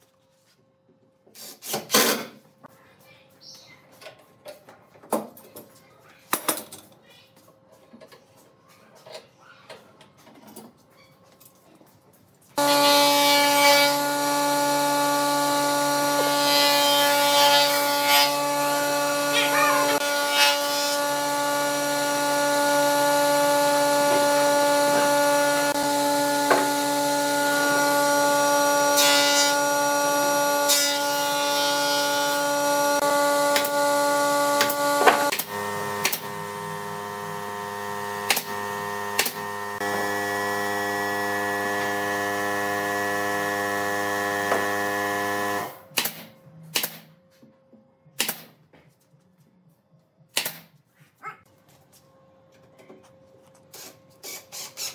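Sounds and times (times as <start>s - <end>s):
nail gun shots: 45.9s - 47.1s, 48.2s - 48.5s, 50.3s - 50.7s.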